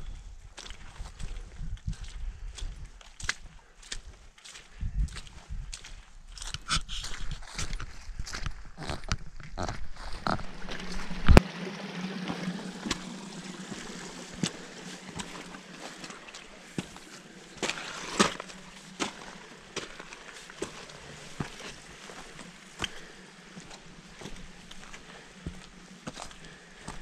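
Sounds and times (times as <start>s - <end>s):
footsteps on dirt trail: 0.0s - 27.0s
stream rushing: 10.2s - 26.4s.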